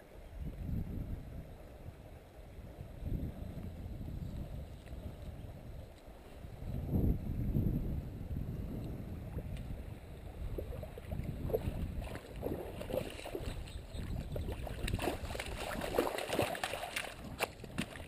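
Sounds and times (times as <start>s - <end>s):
fish splashing in shallow water: 9.4s - 18.0s.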